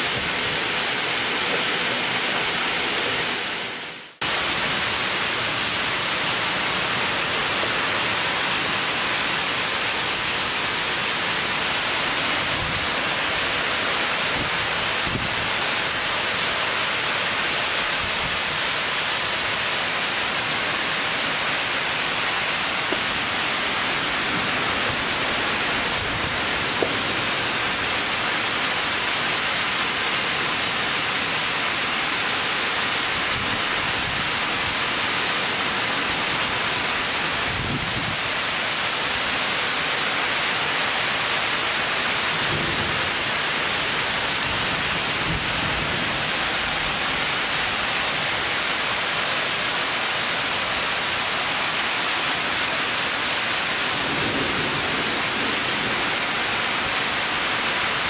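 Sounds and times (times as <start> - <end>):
heavy rain on trees: 0.0 - 58.0
thunder rumbles: 53.8 - 56.6.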